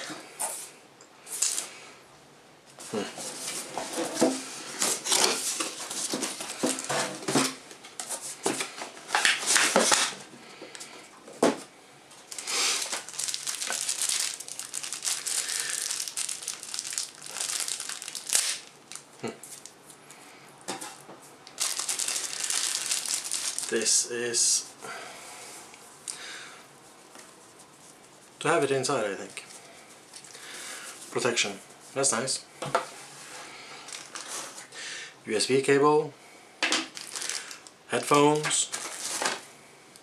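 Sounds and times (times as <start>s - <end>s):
plastic bags crinkling: 1.4s - 1.7s, 12.3s - 19.8s, 21.4s - 24.1s, 33.8s - 34.6s, 36.8s - 39.4s.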